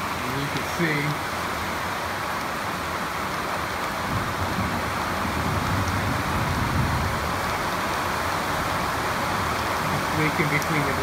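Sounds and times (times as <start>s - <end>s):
rain on metal roof: 0.0s - 11.0s.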